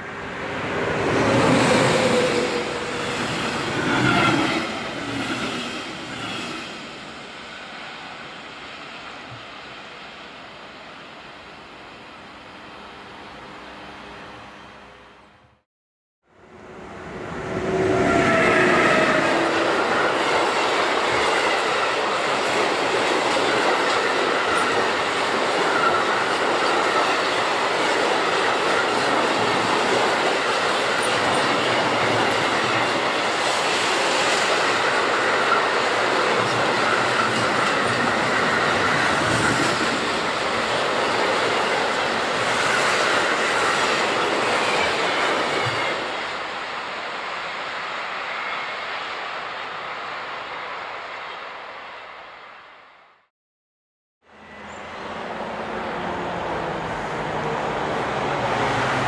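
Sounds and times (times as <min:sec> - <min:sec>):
clickety-clack over rail joints: 0:20.1 - 0:46.0.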